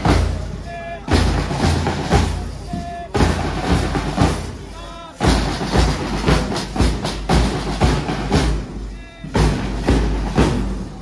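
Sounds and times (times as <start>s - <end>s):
marching band drums: 0.0s - 11.0s.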